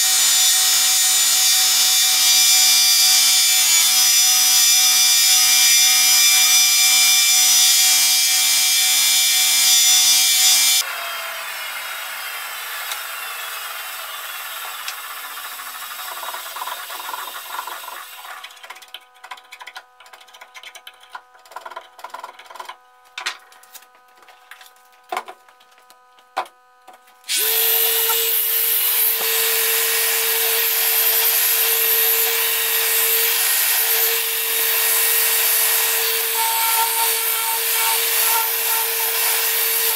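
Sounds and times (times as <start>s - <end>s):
belt grinder running: 27.3s - 39.9s
electric sander running: 27.3s - 39.9s.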